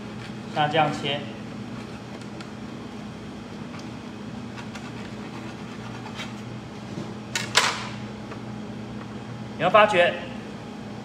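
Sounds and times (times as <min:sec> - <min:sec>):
low machine hum: 0:00.0 - 0:11.0
knife scraping through cake: 0:04.5 - 0:06.5.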